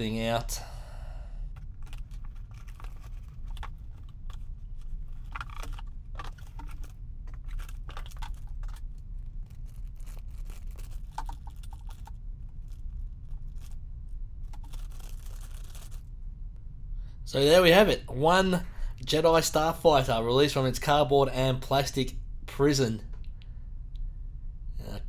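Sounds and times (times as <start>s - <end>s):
cardboard and plastic bag rustling: 1.6s - 13.8s, 14.5s - 16.0s.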